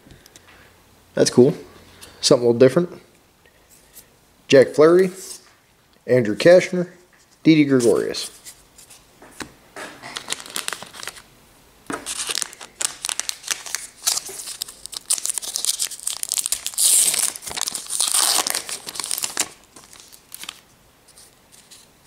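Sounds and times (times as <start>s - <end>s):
cards being handled: 7.7s - 11.2s, 11.9s - 21.9s
wrapper tearing and crinkling: 10.0s - 11.2s, 12.0s - 20.6s.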